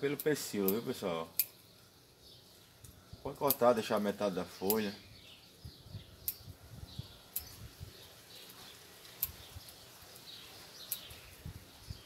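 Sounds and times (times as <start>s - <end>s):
faint birds chirping: 0.0s - 12.0s
scissors snipping leaves: 2.8s - 4.9s, 8.4s - 11.1s.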